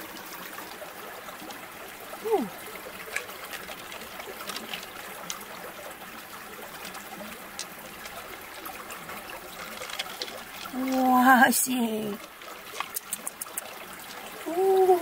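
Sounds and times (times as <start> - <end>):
water trickling: 0.0 - 15.0
fingers clicking in wet mussel flesh: 12.8 - 13.8.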